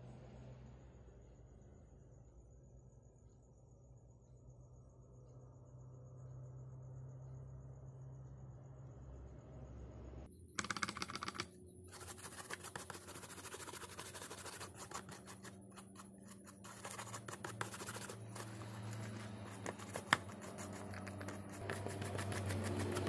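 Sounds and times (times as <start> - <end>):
toothbrush scrubbing circuit board: 10.6 - 23.0.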